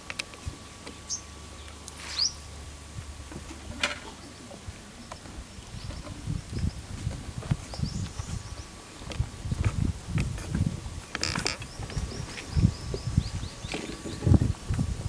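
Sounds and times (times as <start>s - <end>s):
bird chirping: 0.9s - 2.4s, 7.6s - 8.8s, 11.5s - 14.4s.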